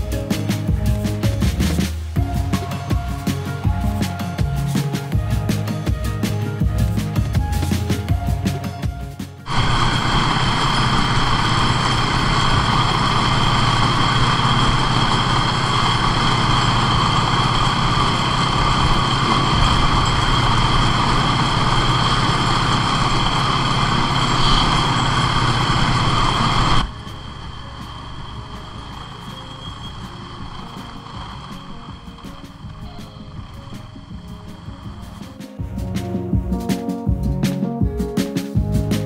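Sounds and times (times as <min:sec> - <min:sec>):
background music: 0:00.0 - 0:25.4, 0:26.3 - 0:39.0
snowmobile engine running: 0:09.4 - 0:35.3
high whine: 0:09.4 - 0:36.2.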